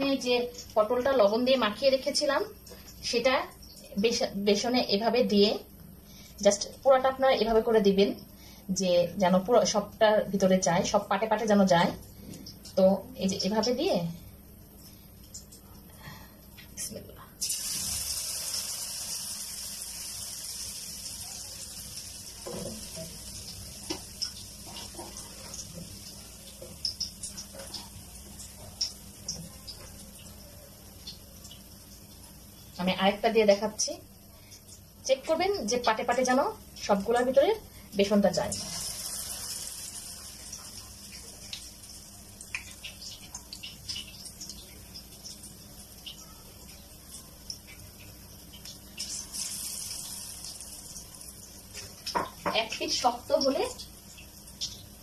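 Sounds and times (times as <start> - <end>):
oil crackling and popping: 17.4 - 32.4, 38.4 - 55.0
battered slice sizzling in hot oil: 17.4 - 55.0.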